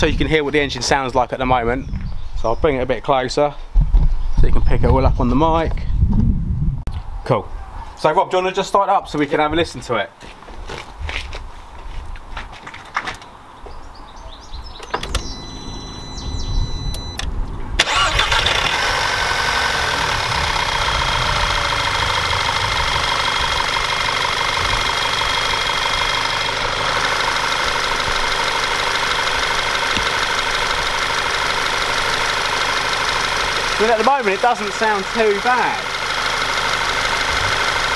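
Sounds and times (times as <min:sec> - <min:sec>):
car engine starting and idling: 0:14.8 - 0:37.9.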